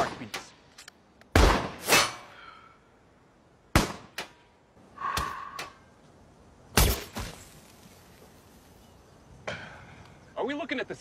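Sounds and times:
rifle shot: 0:01.3 - 0:02.2.

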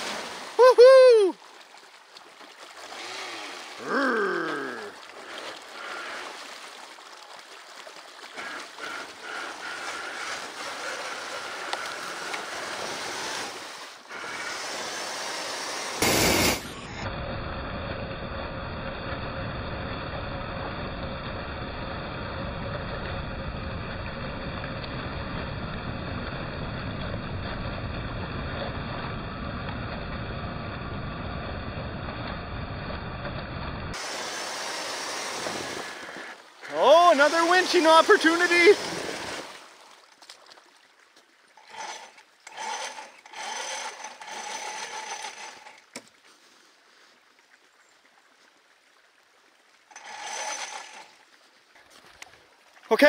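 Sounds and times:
rushing creek water: 0:00.0 - 0:17.0, 0:33.9 - 0:53.0
rc truck splashing through water: 0:00.0 - 0:40.8, 0:41.4 - 0:46.2, 0:49.8 - 0:53.0
loud burst of noise: 0:14.2 - 0:19.4.

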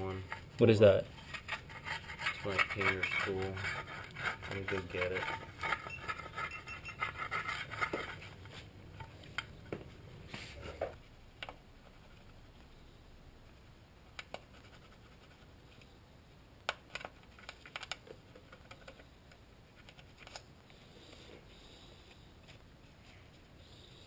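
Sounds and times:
tools scraping metal: 0:01.1 - 0:08.2.

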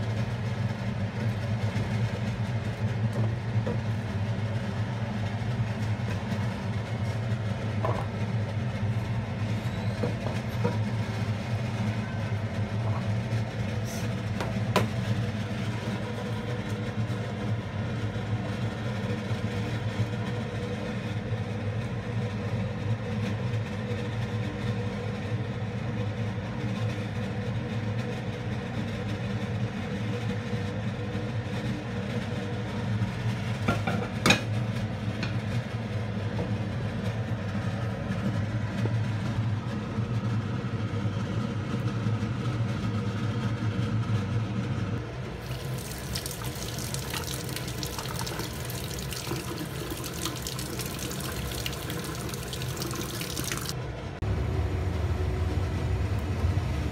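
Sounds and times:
low mechanical hum: 0:00.0 - 0:56.9
tap running water into sink: 0:45.4 - 0:53.8.

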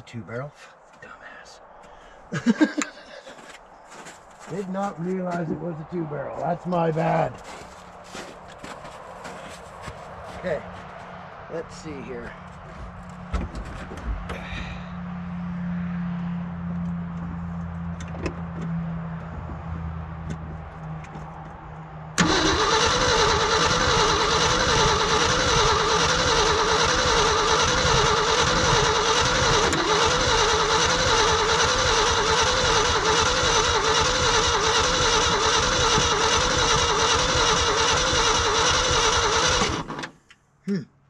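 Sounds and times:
engine cranking on starter: 0:22.2 - 0:40.2.

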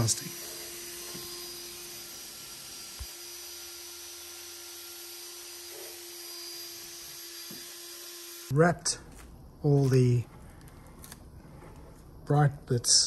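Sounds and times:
drill motor whine: 0:00.0 - 0:08.5.

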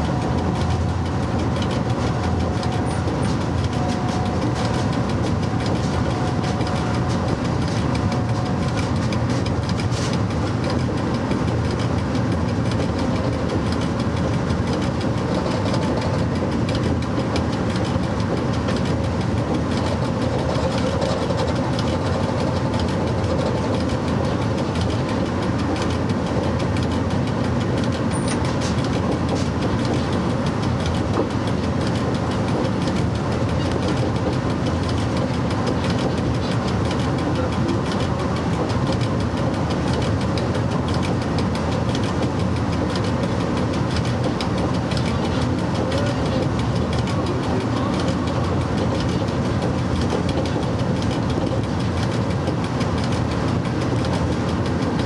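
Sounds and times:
train wheels running on rail: 0:00.0 - 0:55.0.

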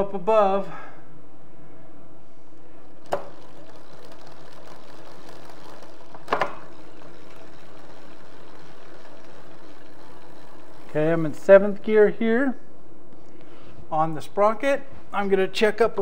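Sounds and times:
bike chain and derailleur running: 0:02.8 - 0:11.9.

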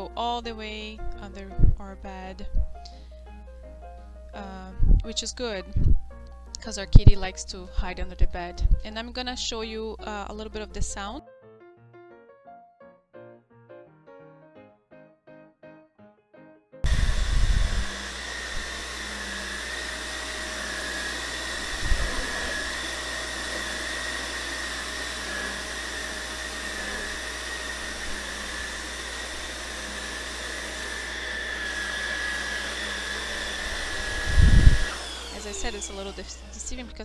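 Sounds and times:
vacuum cleaner running: 0:16.8 - 0:37.0.

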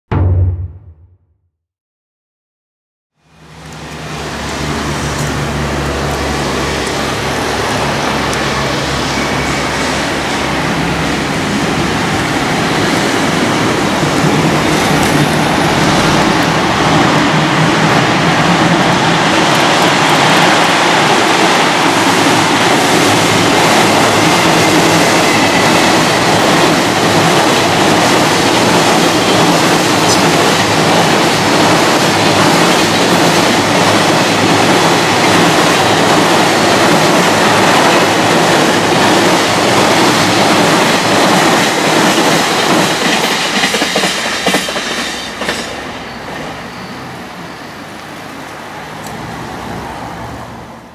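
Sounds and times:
freight train rolling on bridge: 0:03.3 - 0:50.9.

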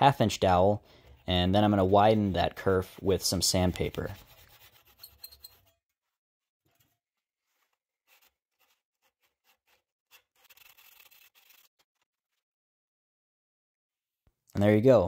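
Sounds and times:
sandpaper rubbing wood: 0:01.6 - 0:05.2, 0:07.5 - 0:12.0.

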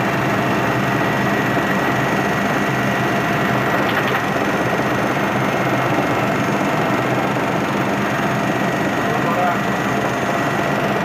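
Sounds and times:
helicopter engine and rotor drone: 0:00.0 - 0:11.0.

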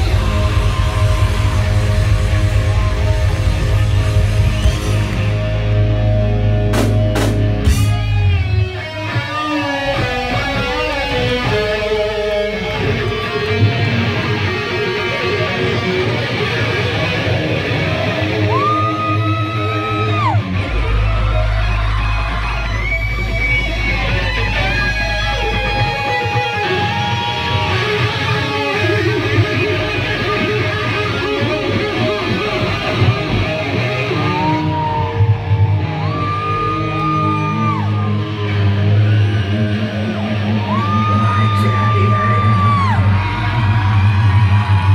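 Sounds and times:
electric guitar lead: 0:00.0 - 0:44.9
live hard rock band: 0:00.0 - 0:44.9
sharp drum hits: 0:06.7 - 0:08.0.

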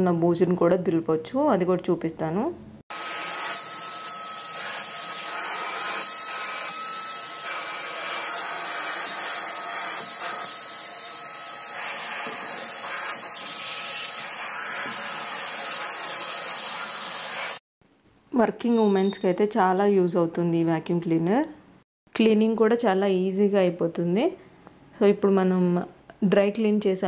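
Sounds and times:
vacuum cleaner running: 0:02.9 - 0:17.6.

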